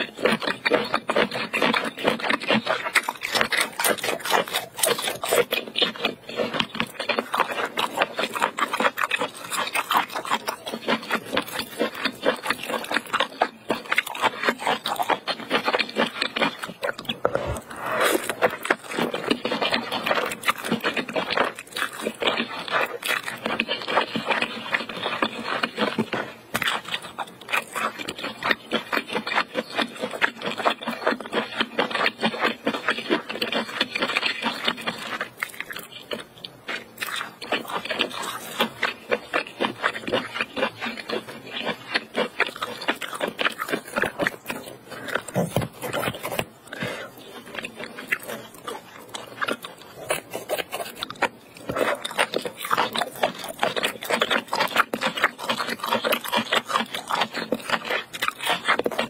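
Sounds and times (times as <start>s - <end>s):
slurping noodles: 0.0s - 35.8s
wet chewing smacks: 0.0s - 59.0s.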